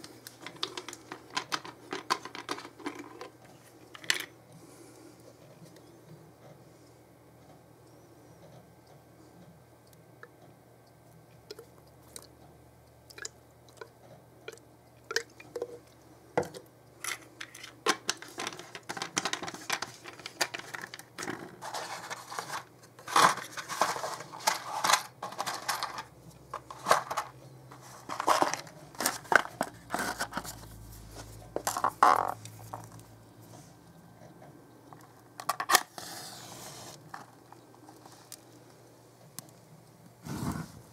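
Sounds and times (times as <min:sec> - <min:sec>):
crunching and rustling of debris: 0:16.4 - 0:33.1.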